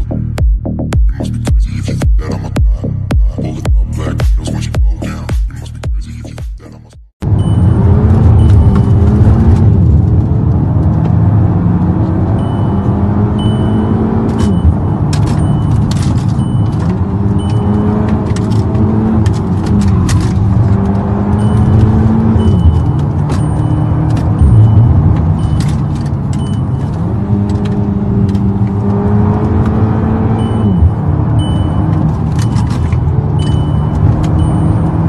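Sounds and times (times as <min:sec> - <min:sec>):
car engine in cabin: 0:00.0 - 0:35.0
road noise: 0:00.0 - 0:35.0
short high beep: 0:07.4 - 0:09.1, 0:12.4 - 0:18.0, 0:21.4 - 0:25.8
clicks: 0:12.3 - 0:29.8, 0:30.4 - 0:34.9.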